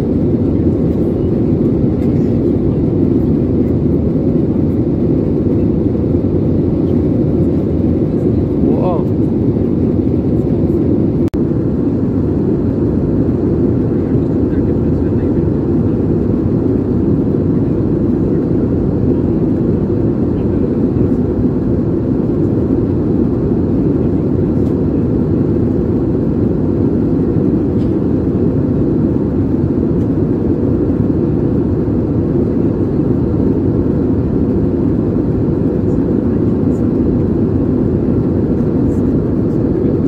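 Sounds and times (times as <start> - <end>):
jet airliner cabin noise: 0.0 - 40.0.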